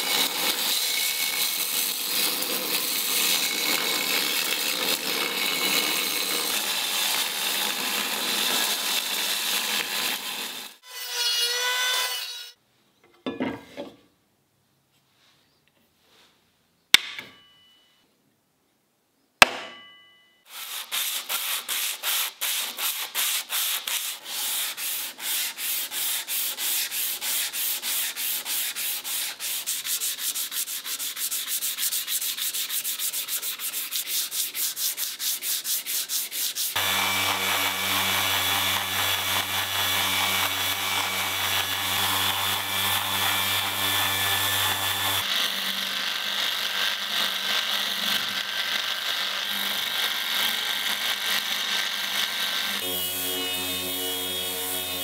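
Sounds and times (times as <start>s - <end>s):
electric sheet sander running: 0.0s - 10.8s, 36.7s - 55.0s
steel blade ringing: 17.2s - 18.0s, 19.5s - 20.4s
sandpaper rubbing on blade: 20.5s - 52.9s.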